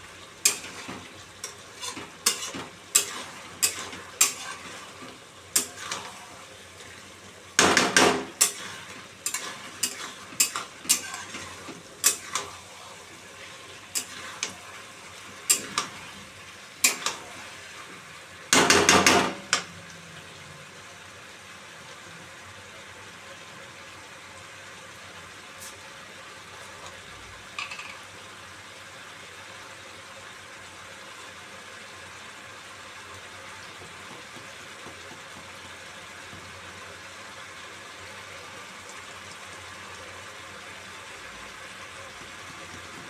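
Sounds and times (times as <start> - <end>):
frying sizzle: 0.0 - 43.0
metal spatula scraping a pan: 0.4 - 6.4, 7.8 - 12.8, 13.9 - 14.6.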